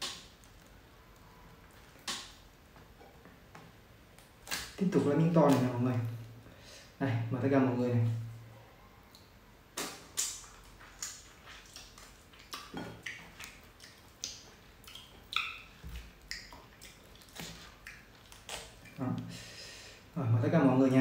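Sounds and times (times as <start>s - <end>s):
person chewing wetly: 9.8s - 19.3s.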